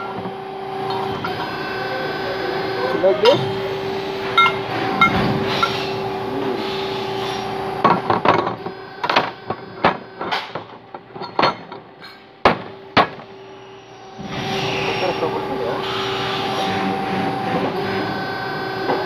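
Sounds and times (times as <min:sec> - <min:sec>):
steady machine hum: 0:00.0 - 0:19.0
sheet steel clanking on worktable: 0:09.1 - 0:13.2.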